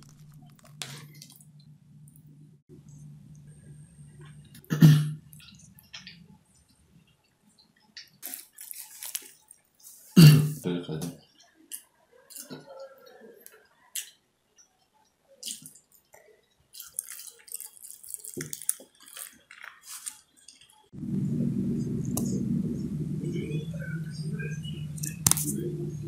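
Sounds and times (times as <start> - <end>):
chewing and mouth clicks: 15.4 - 20.8
crunching bites: 16.8 - 20.7.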